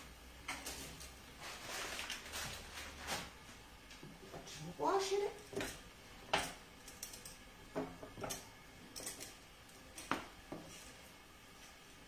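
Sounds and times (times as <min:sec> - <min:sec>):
pot and utensil clicks and taps: 0:05.5 - 0:10.7.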